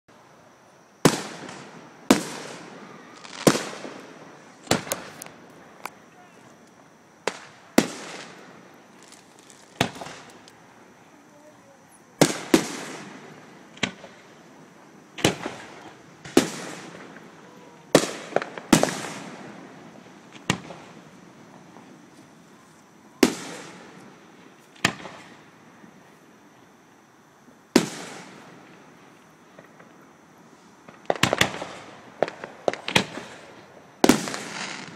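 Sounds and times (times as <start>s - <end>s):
firework shells bursting: 1.0s - 10.6s.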